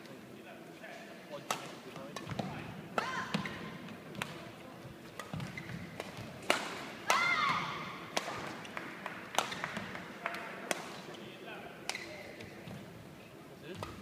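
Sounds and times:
racket striking shuttlecock: 0:01.5 - 0:04.4, 0:05.1 - 0:11.0, 0:11.8 - 0:12.5
shoe squealing on court floor: 0:05.3 - 0:05.9.

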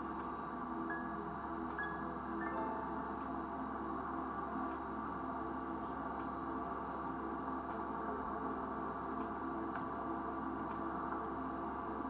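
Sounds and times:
ambient music with bell-like tones: 0:00.0 - 0:12.0
low hum: 0:00.0 - 0:12.0
faint light ticks: 0:09.2 - 0:10.0.

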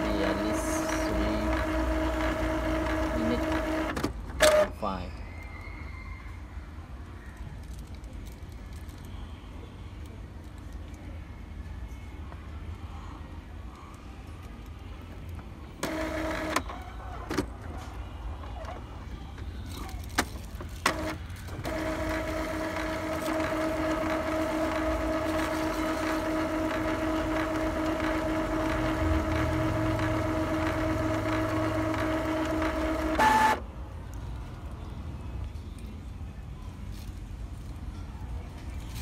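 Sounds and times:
printer clicks: 0:00.0 - 0:04.7, 0:15.8 - 0:16.7, 0:20.8 - 0:33.6
printer motor whine and hum: 0:00.0 - 0:04.8, 0:15.8 - 0:18.8, 0:20.8 - 0:33.6.

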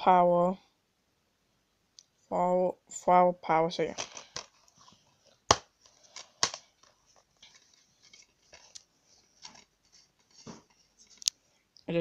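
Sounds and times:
plastic case clicking: 0:05.5 - 0:06.9.

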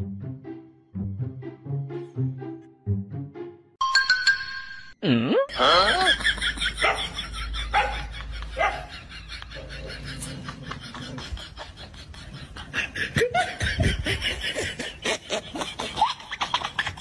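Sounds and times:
person laughing breathily: 0:05.6 - 0:17.0.

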